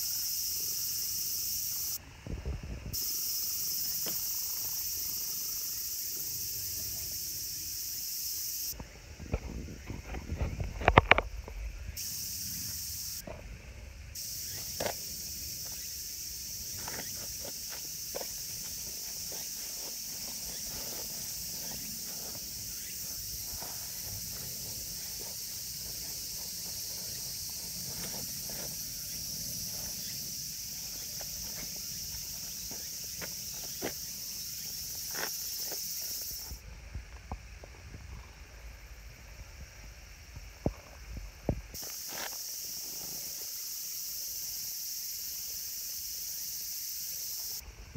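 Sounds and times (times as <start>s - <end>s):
high-pitched insect chorus: 0.0s - 47.9s
footsteps in grass: 16.5s - 36.5s
soft rustles: 16.7s - 28.8s.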